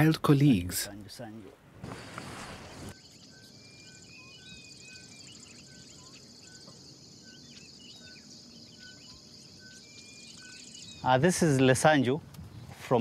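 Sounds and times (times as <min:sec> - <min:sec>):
insects trilling: 0:01.9 - 0:12.1
bird chirps: 0:02.0 - 0:11.8.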